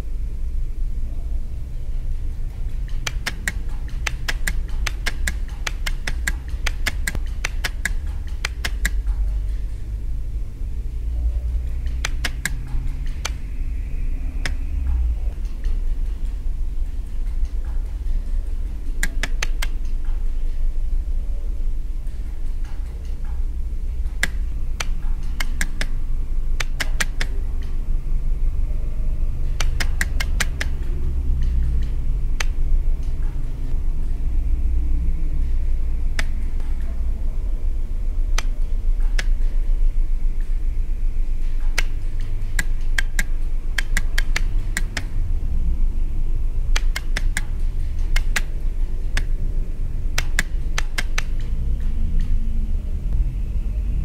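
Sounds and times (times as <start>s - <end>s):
steady low rumble: 0.0s - 54.0s
electrical relays clicking: 1.9s - 10.3s, 11.5s - 13.6s, 14.4s - 20.7s, 22.0s - 27.9s, 29.4s - 33.8s, 41.3s - 45.4s, 46.6s - 52.0s.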